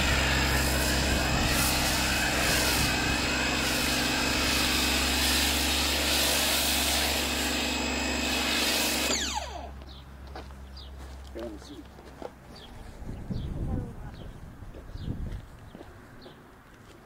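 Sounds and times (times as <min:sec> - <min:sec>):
spray hissing: 0:00.0 - 0:07.6
pressure washer motor whine: 0:00.0 - 0:09.8.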